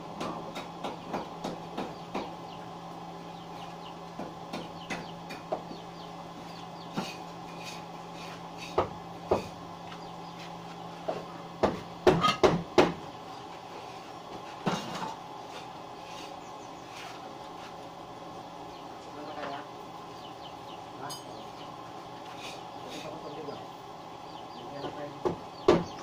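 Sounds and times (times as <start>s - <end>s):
steady low hum: 0.0s - 26.0s
knocks on wooden boards: 11.1s - 13.1s, 25.2s - 26.0s.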